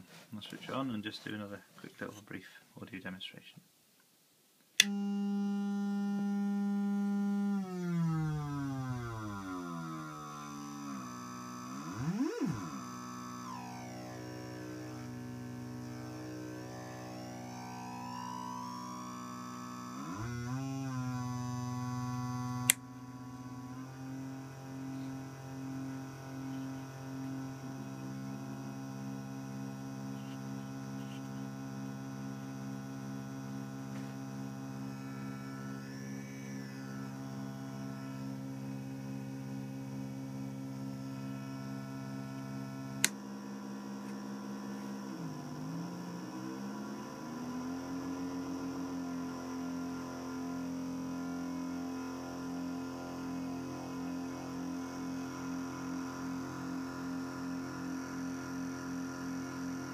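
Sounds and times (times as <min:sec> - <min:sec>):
buzzy oscillator drone: 0:04.9 - 0:59.9
low tone sweeping up: 0:05.5 - 0:28.8.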